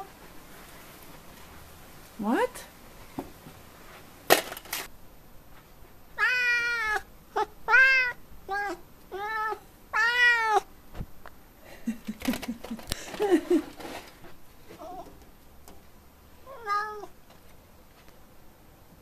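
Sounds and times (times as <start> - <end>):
cat meowing: 6.2 - 10.7, 16.4 - 17.2.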